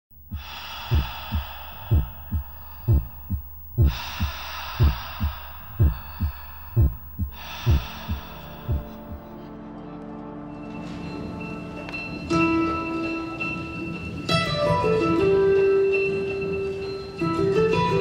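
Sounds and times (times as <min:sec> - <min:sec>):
heartbeat thumps: 0:00.1 - 0:09.4.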